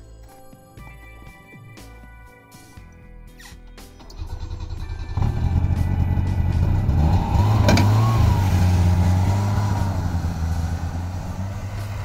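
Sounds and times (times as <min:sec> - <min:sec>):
snowmobile engine revving: 0:04.2 - 0:12.0.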